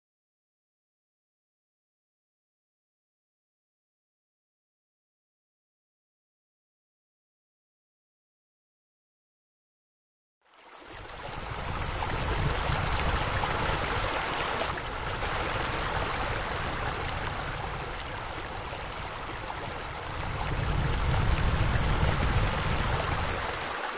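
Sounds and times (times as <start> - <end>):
running splashing water: 10.6 - 23.9.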